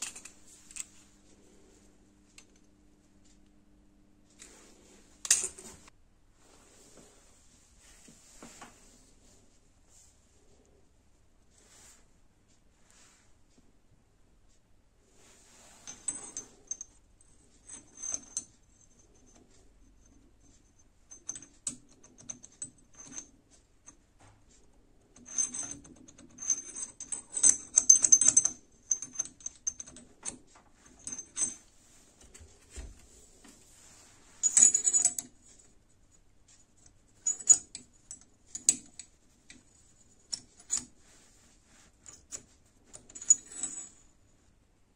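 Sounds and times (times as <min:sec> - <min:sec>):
metal collet clicking and scraping: 0:00.0 - 0:01.4, 0:05.2 - 0:05.7, 0:25.2 - 0:31.7, 0:36.5 - 0:44.0.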